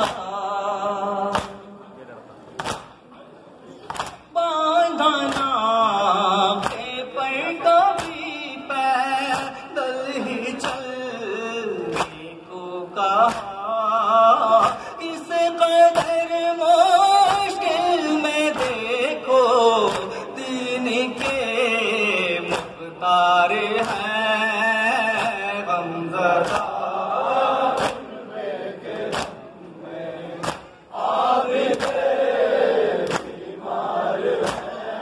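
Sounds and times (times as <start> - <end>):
man singing a mourning lament: 0.0 - 2.0, 4.3 - 27.7
chest-beating slaps: 1.3 - 1.7, 2.6 - 3.0, 3.9 - 4.2, 13.3 - 13.5, 19.9 - 20.2, 22.4 - 22.8, 27.8 - 28.1, 29.1 - 29.4, 30.4 - 30.8, 31.7 - 32.1, 33.0 - 33.4, 34.4 - 34.8.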